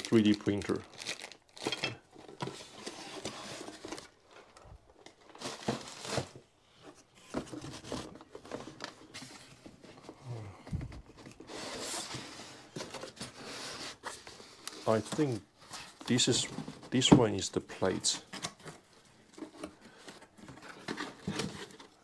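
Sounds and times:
plastic bags crinkling: 0.0s - 3.0s, 3.8s - 6.4s
cardboard boxes rustling and knocking: 5.4s - 17.4s, 18.2s - 22.0s.

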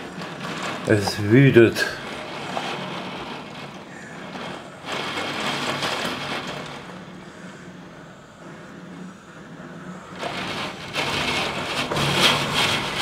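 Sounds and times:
heavy rain rushing: 0.0s - 7.2s, 10.0s - 13.0s.

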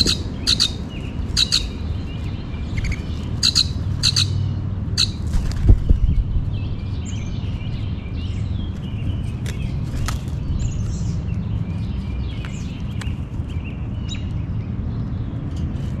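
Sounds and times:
grackle chack calls: 0.0s - 1.7s, 2.8s - 4.4s.

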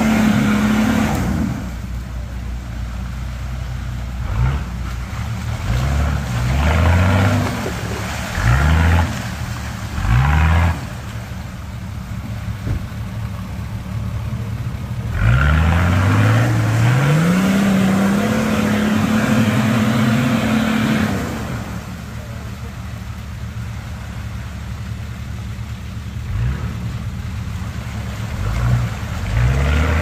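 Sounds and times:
engine revving: 0.0s - 1.8s, 4.2s - 11.1s, 15.1s - 22.0s, 26.2s - 27.0s, 28.3s - 30.0s
wheels spinning in mud: 4.2s - 12.5s, 21.1s - 30.0s.

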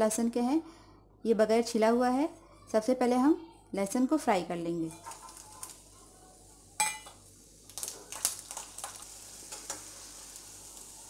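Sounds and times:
garlic sizzling in hot oil: 4.9s - 11.0s.

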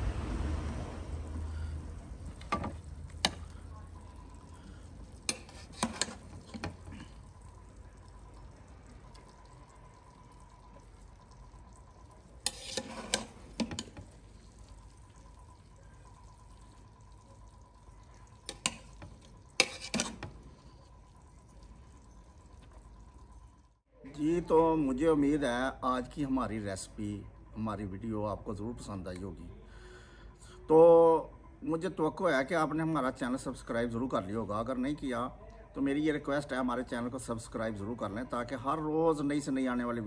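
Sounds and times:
faint steady high tone: 1.1s - 5.2s, 13.7s - 19.4s, 20.3s - 40.0s
metal spoon scraping a pot: 5.2s - 7.2s, 12.4s - 14.2s, 18.4s - 20.8s.

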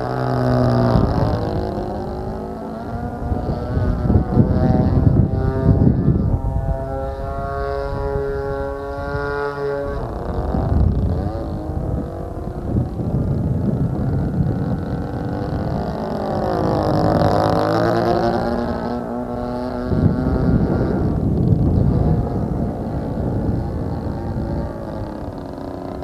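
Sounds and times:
model plane engine buzzing: 0.0s - 26.0s.

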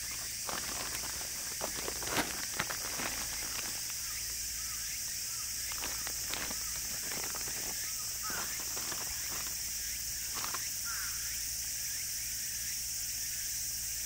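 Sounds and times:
light clicks and rustles: 0.0s - 4.3s, 5.7s - 10.7s
steady high hiss: 0.0s - 13.2s.

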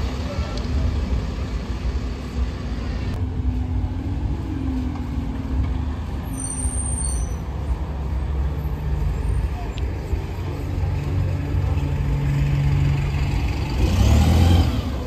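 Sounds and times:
bus engine rumble: 0.0s - 15.0s
high squeal: 6.2s - 7.5s.

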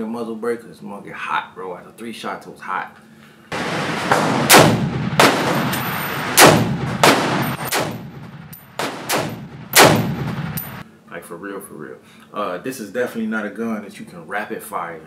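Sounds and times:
heavy gunshots: 3.5s - 10.8s
long ringing echo: 5.4s - 6.4s.

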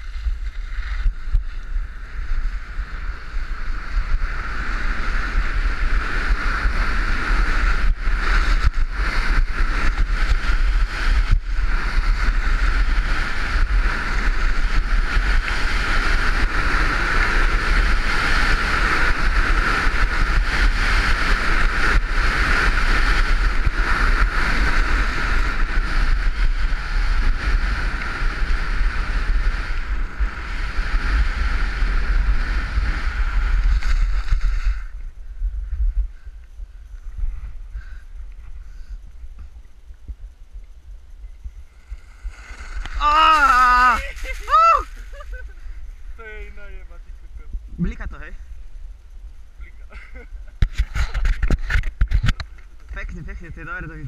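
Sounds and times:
skis sliding over snow: 0.0s - 35.2s, 41.7s - 45.6s
wind buffeting microphone: 0.0s - 54.0s.

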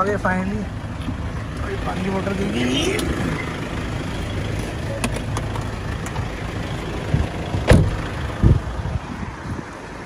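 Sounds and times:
car engines idling: 0.0s - 10.0s
road traffic rumble: 0.0s - 10.0s
dull thump: 7.7s - 8.0s.

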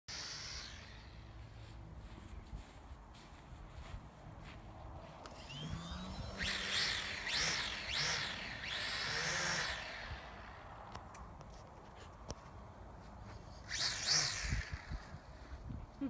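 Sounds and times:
model plane whooshing past: 0.1s - 1.5s, 5.1s - 11.6s, 13.3s - 15.9s.

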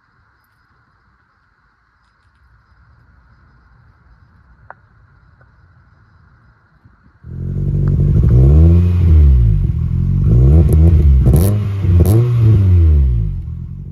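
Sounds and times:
car engine revving: 7.3s - 13.9s.

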